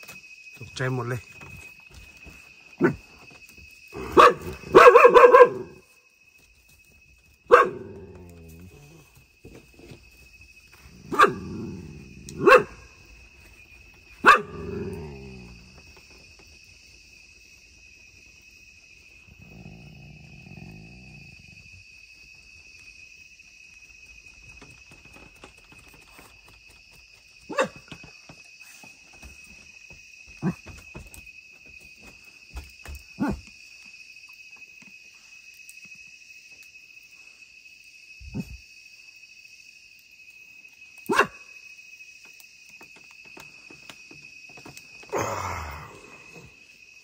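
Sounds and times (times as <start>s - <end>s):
high insect trill: 0.0s - 47.0s
dog barking: 4.0s - 5.8s, 7.5s - 8.1s, 11.1s - 11.6s, 12.3s - 13.0s, 14.2s - 15.2s, 27.5s - 27.8s, 33.2s - 33.4s, 41.0s - 41.5s
dog growling low: 7.8s - 9.2s, 11.1s - 12.4s, 14.4s - 15.8s, 19.3s - 21.6s, 45.1s - 46.6s.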